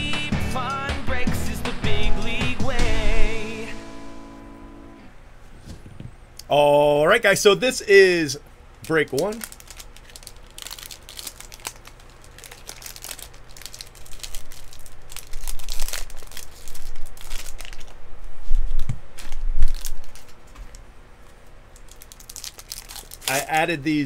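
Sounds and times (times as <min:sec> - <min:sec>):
foil wrapper crinkling and tearing: 0:08.8 - 0:20.8, 0:21.7 - 0:23.8.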